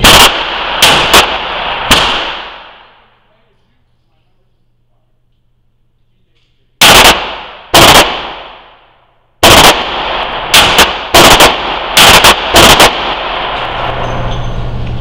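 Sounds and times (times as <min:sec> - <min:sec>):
loud gunshots with echo: 0:00.0 - 0:03.3, 0:06.8 - 0:08.8, 0:09.4 - 0:14.3.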